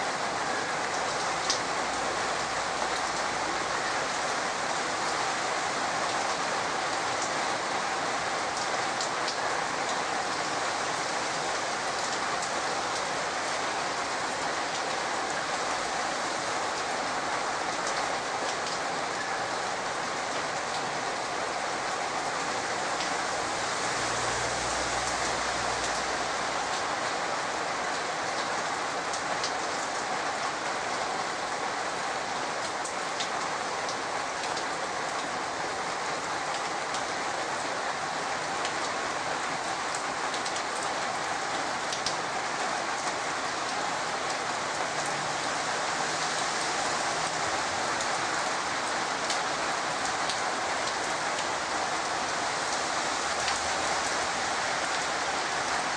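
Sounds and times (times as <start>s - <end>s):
heavy rain: 0.0s - 55.9s.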